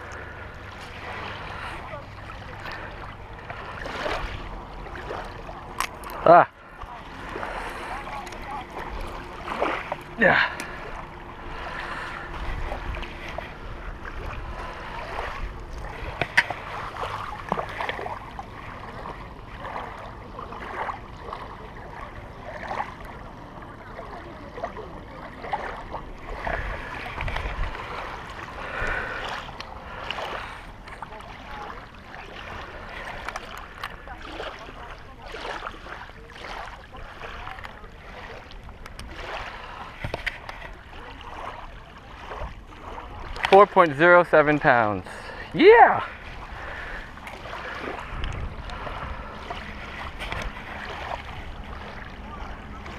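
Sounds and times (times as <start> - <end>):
small waves lapping on gravel: 0.0 - 52.9
wind gusts on microphone: 47.6 - 50.6.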